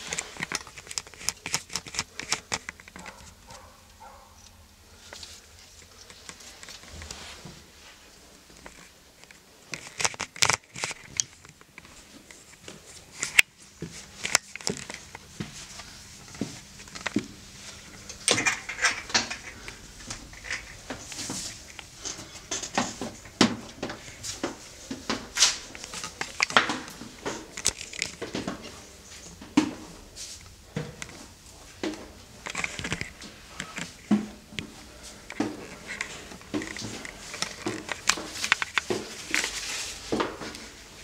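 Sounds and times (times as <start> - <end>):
footsteps on wooden stairs: 33.1 - 40.8.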